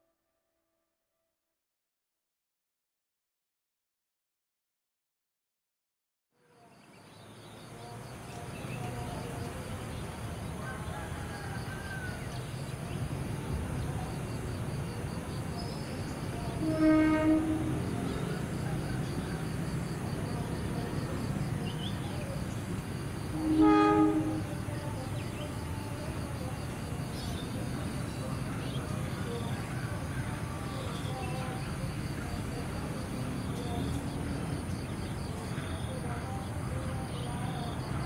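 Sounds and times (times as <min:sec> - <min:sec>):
locomotive engine rumble: 0:08.1 - 0:38.0
locomotive horn blasts: 0:16.5 - 0:18.3, 0:23.3 - 0:24.6.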